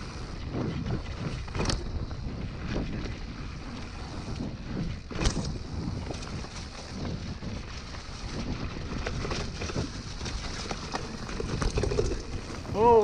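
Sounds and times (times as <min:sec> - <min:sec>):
tyres rumbling and bike rattling: 0:00.0 - 0:13.0
wind rushing over microphone: 0:00.0 - 0:13.0.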